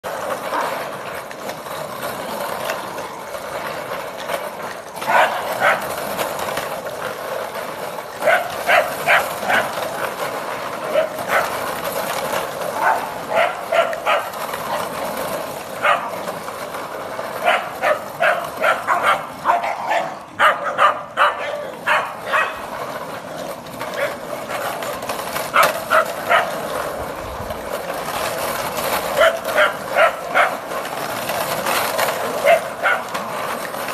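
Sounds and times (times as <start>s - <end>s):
steady background noise: 0.0s - 33.9s
small dogs yapping: 17.4s - 22.6s, 29.2s - 30.6s, 32.4s - 33.1s.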